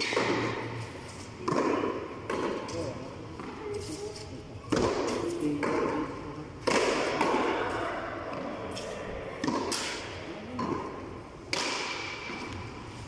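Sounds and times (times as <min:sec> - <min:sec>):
ball bouncing on concrete: 0:01.4 - 0:03.6, 0:04.7 - 0:07.4
ball slapping against wall: 0:11.5 - 0:12.6.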